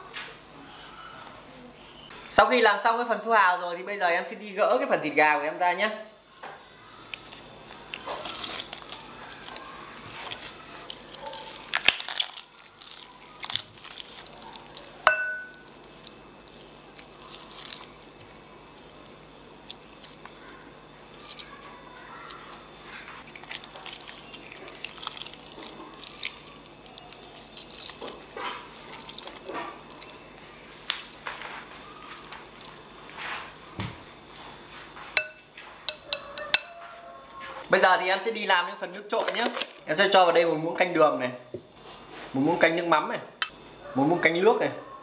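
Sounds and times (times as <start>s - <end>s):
wet tearing of chicken meat: 7.0s - 15.0s, 15.6s - 22.6s, 23.2s - 32.9s
clink against glass bowl: 15.1s - 15.7s, 35.2s - 36.8s.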